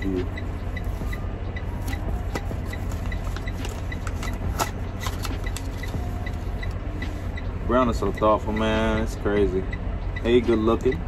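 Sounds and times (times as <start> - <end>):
vehicle rumble: 0.0 - 11.0
paper card rustling: 1.8 - 5.9.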